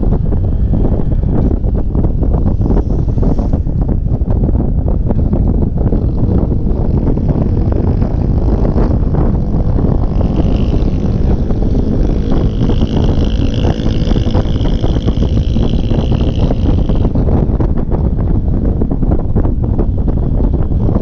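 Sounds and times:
road noise: 0.0s - 21.0s
wind buffeting microphone: 0.0s - 21.0s
scooter engine: 5.8s - 17.6s.

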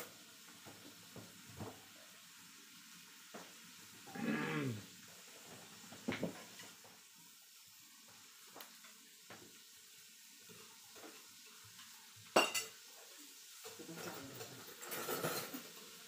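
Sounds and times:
metal utensils clinking and scraping: 11.0s - 12.8s, 13.6s - 16.0s.

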